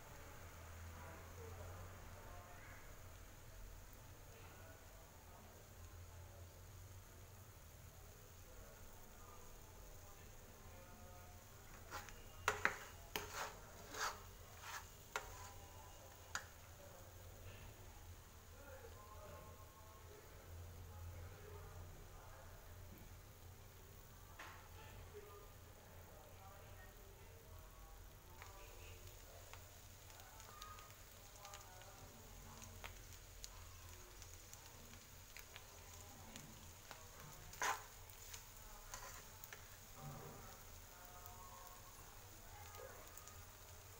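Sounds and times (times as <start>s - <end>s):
food frying in oil: 0.0s - 43.9s
spatula scraping a frying pan: 11.6s - 15.7s, 37.2s - 40.4s.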